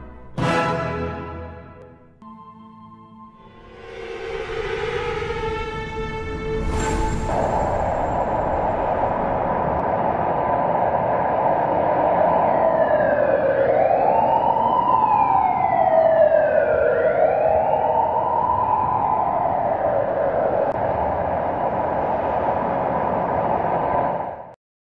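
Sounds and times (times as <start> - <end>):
wailing tone: 2.2 - 9.8
steady rushing noise: 3.6 - 15.1, 17.7 - 24.5.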